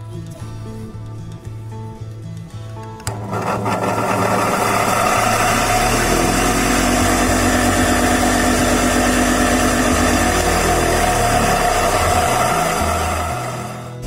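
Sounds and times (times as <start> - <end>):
electric lawn mower running: 3.0 - 14.0.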